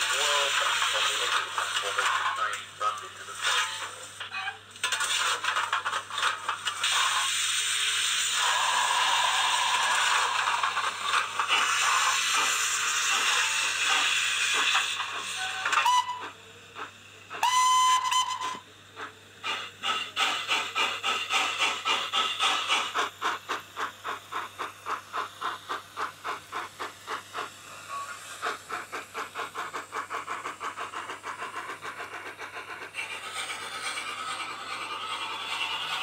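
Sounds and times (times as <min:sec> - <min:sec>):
steam exhaust chuffs: 0:00.0 - 0:04.1, 0:04.9 - 0:36.0
steam locomotive whistle: 0:15.3 - 0:16.4, 0:17.4 - 0:18.7.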